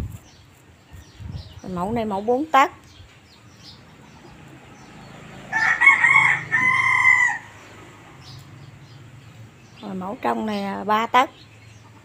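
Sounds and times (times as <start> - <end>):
rooster crowing: 5.4 - 7.7.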